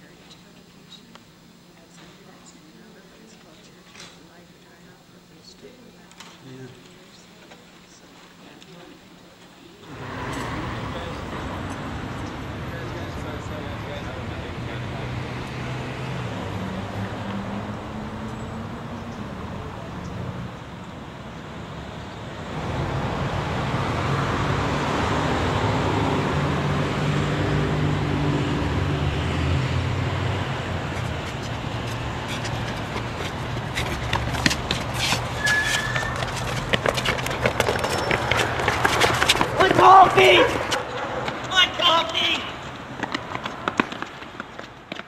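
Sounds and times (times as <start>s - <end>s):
low traffic rumble: 9.8s - 45.0s
passing vehicle engine hum: 9.9s - 41.5s
steady road noise: 9.9s - 45.0s
shoes scuffing and stamping on concrete: 30.4s - 41.8s, 42.6s - 45.0s
short high squeak: 35.3s - 36.3s.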